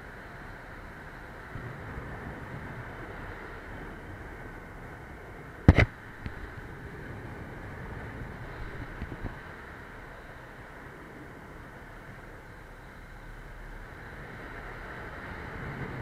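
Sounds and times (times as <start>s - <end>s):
faint ticks: 5.7s - 6.7s, 8.5s - 9.5s.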